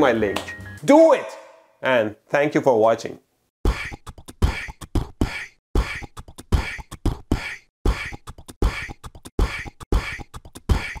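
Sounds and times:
beatboxing: 0:03.7 - 0:11.0.

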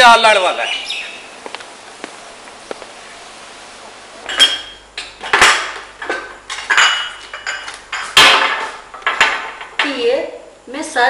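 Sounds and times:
china cups clinking: 0:06.7 - 0:08.1.

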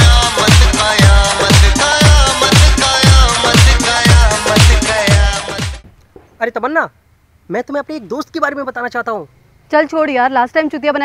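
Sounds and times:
electronic dance music: 0:00.0 - 0:05.8.

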